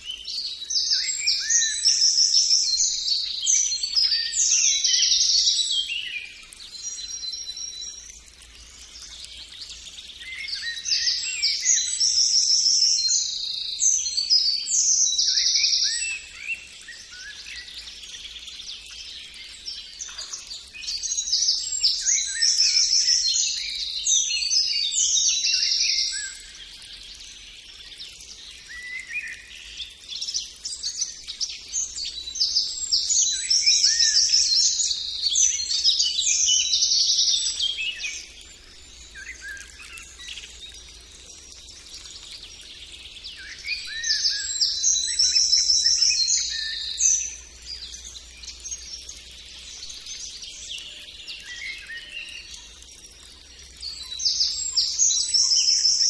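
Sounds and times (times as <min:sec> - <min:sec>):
songbird trilling and chirping: 0:30.8 - 0:49.3.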